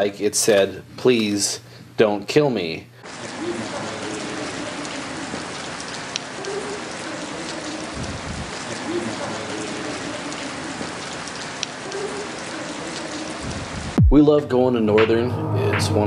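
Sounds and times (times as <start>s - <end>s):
steady static hiss: 0.0s - 14.0s
low rumble: 15.0s - 16.0s.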